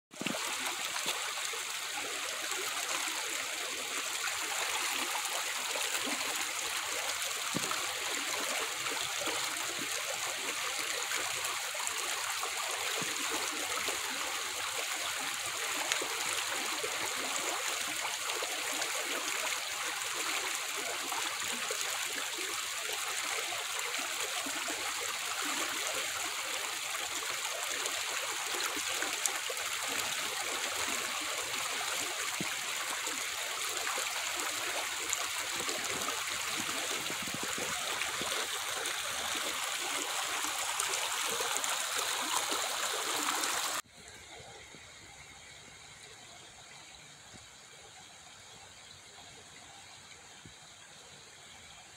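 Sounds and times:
stream flowing over rocks: 0.1 - 51.9.

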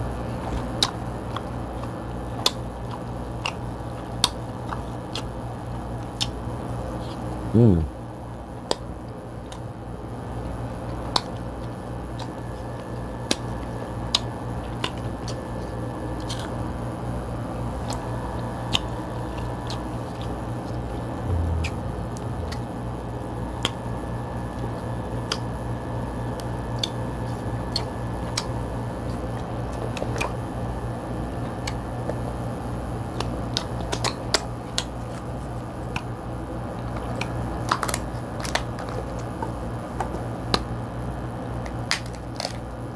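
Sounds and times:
steady low hum: 0.0 - 42.9
crab shell clicking and cracking: 41.6 - 42.6.

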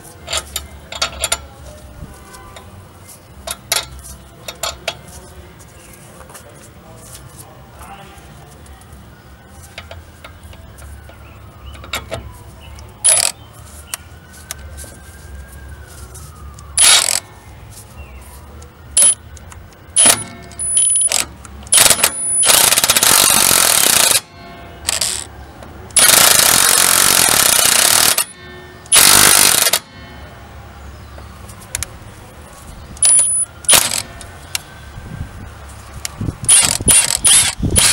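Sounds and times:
impact wrench hammering: 20.0 - 24.3, 26.0 - 29.9, 36.5 - 37.9.

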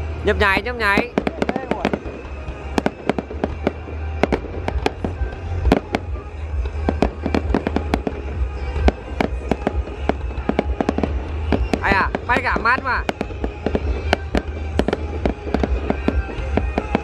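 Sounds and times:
fireworks bangs: 0.0 - 17.0.

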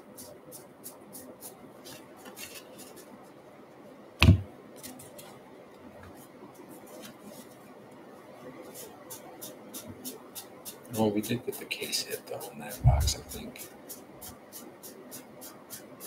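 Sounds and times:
loud thump: 4.2 - 4.5.

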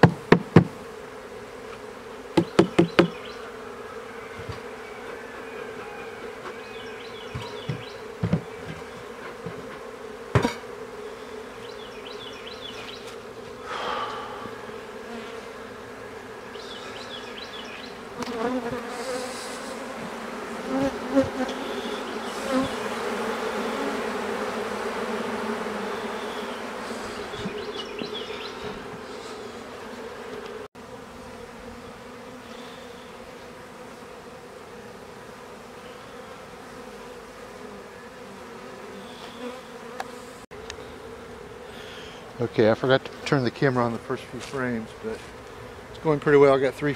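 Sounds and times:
sharp knocks: 0.0 - 0.8, 2.4 - 3.2, 7.3 - 10.6
bees buzzing: 0.0 - 46.9.

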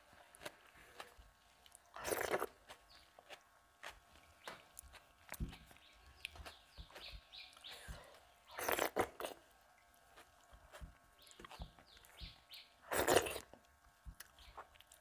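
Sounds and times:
wet slurp: 2.0 - 2.6, 8.5 - 9.4, 12.8 - 13.6.

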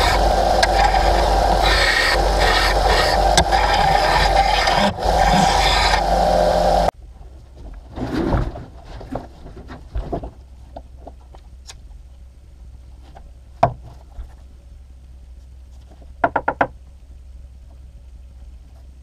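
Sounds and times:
belt sander grinding metal: 0.0 - 6.9.

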